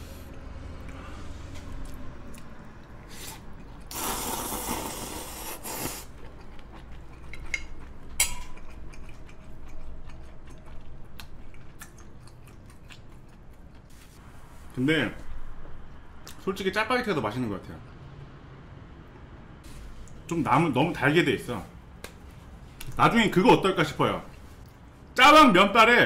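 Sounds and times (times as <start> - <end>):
chewing with wet mouth sounds: 1.7 - 4.0, 5.4 - 14.2, 24.6 - 25.1
person slurping noodles: 3.1 - 6.2.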